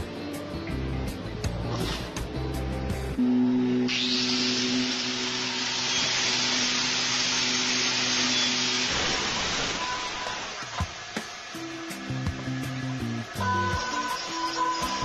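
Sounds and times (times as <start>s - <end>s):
electric pump motor hum: 3.2s - 15.0s
sander roller hiss: 3.9s - 15.0s.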